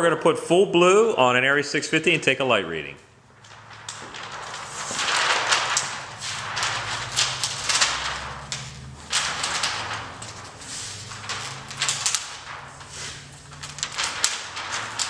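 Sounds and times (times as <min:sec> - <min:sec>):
plastic gel sheet crinkling: 0:03.3 - 0:15.0.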